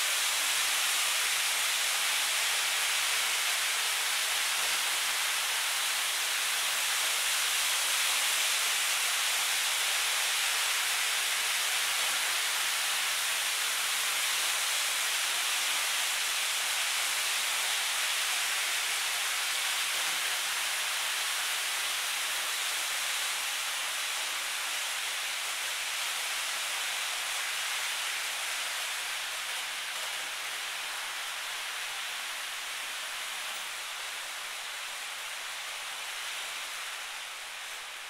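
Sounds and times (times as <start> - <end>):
model trains rushing on track: 0.0 - 34.7.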